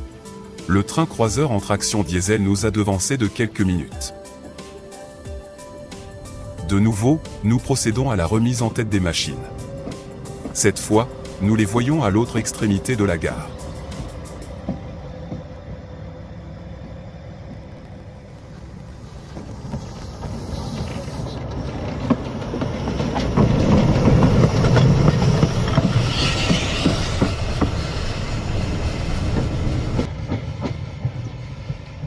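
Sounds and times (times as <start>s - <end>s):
train wheels clicking on rails: 5.9s - 32.0s
brief hiss: 18.9s - 21.4s.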